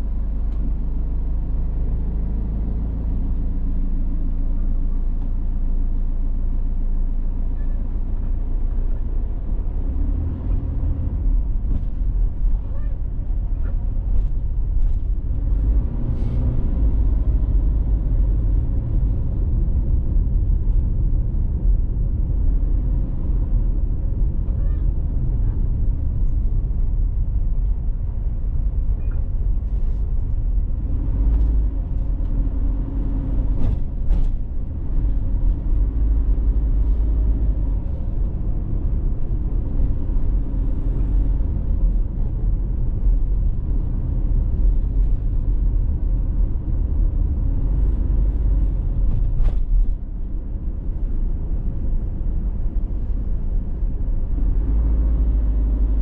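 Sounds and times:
car road and engine rumble: 0:00.0 - 0:56.0.

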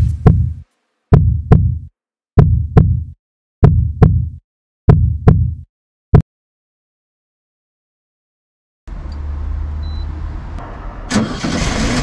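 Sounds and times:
heartbeat thumps: 0:00.0 - 0:06.2.

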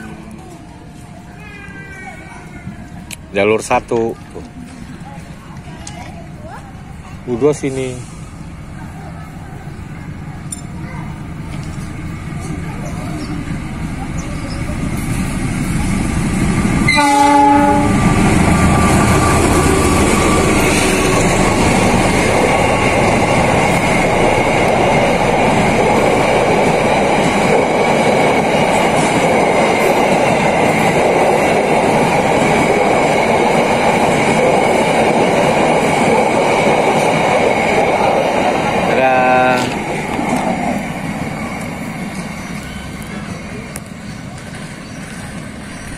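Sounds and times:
train wheels on rails: 0:00.0 - 0:45.9
diesel locomotive horn: 0:16.9 - 0:19.3.

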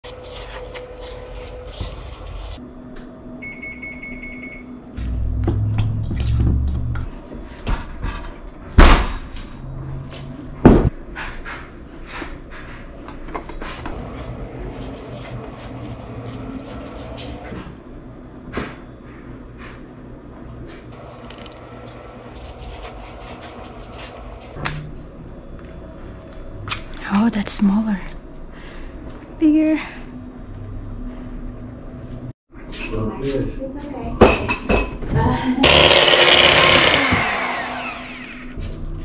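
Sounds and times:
hands mixing in glass cup: 0:00.0 - 0:02.6
spatula scraping mixing bowl: 0:00.0 - 0:02.6, 0:13.9 - 0:17.6, 0:21.0 - 0:24.6.

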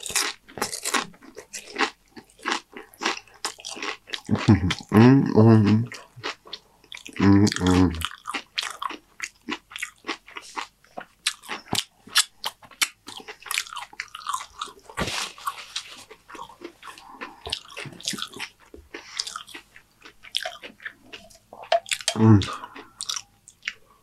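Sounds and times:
chewing crunchy chips: 0:00.0 - 0:24.0
paper napkin rustle: 0:15.0 - 0:16.1.

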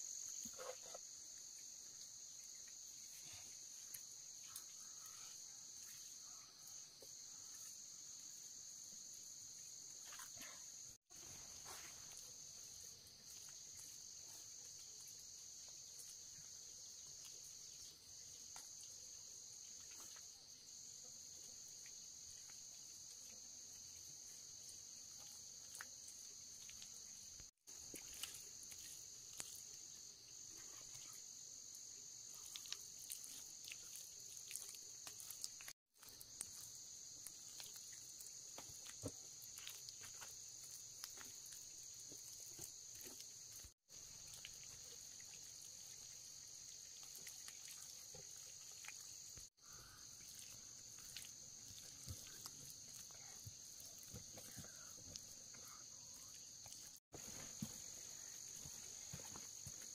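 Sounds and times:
insects chirring: 0:00.0 - 0:59.9.

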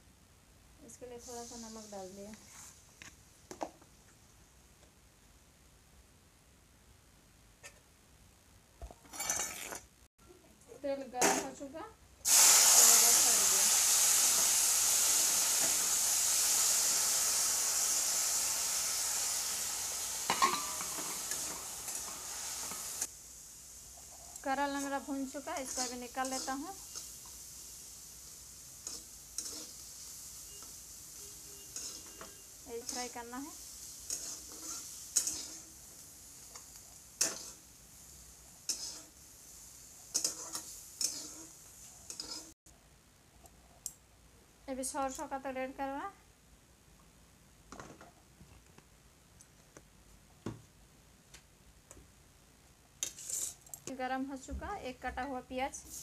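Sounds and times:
vegetables sizzling in hot oil: 0:00.8 - 0:02.8, 0:10.9 - 0:42.6, 0:53.0 - 0:56.0
metal clink on steel pan: 0:20.3 - 0:21.1
steel ladle clinking and scraping: 0:31.7 - 0:32.4, 0:34.1 - 0:35.7, 0:37.2 - 0:37.6.

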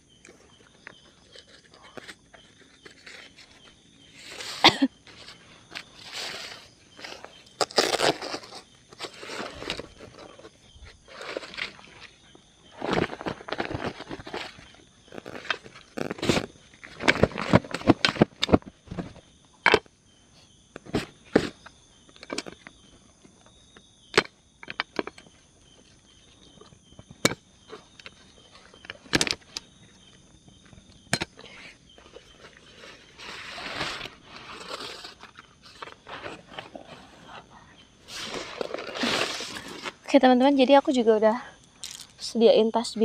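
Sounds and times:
rustling: 0:00.9 - 0:19.3, 0:31.5 - 0:40.2.

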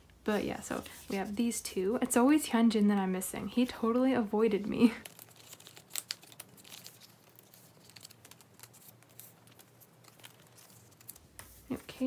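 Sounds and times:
plastic sleeves crinkling: 0:04.4 - 0:12.0.

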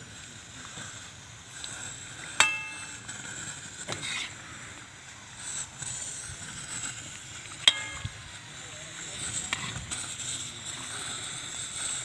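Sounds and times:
metallic clink: 0:02.4 - 0:03.1, 0:07.7 - 0:08.4.

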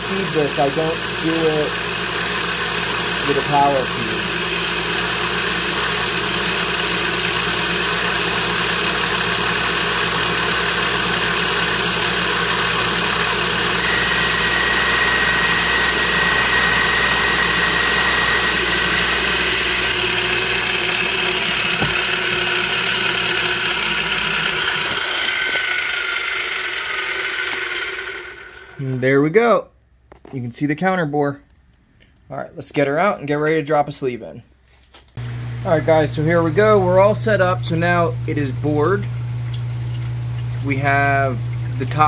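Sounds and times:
boring bar running: 0:00.0 - 0:29.0
high cutting whine: 0:10.0 - 0:29.1.

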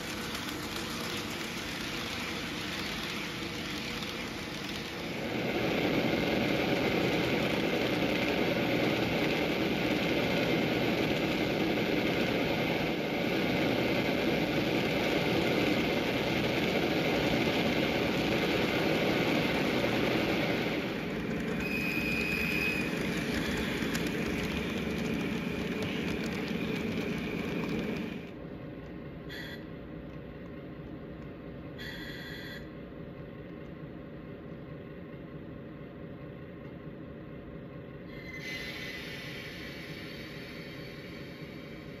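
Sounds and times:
model train wheels rattling on rails: 0:00.0 - 0:28.4
motor hum: 0:00.0 - 0:28.4.

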